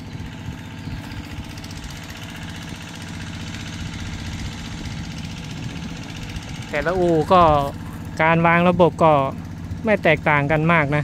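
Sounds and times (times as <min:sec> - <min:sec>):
engine idling: 0:00.0 - 0:11.0.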